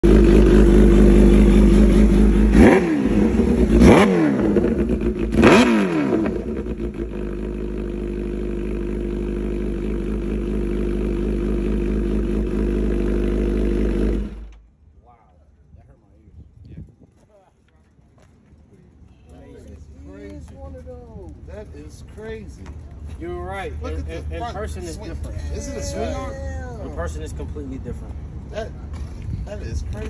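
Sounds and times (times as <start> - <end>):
motorcycle engine idling and revving: 0.0 - 14.8.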